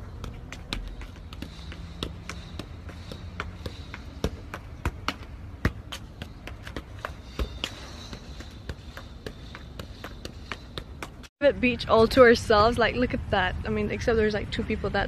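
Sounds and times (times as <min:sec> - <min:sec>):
ball taps and thumps: 0:00.0 - 0:11.3
footfalls on paving: 0:00.0 - 0:11.3.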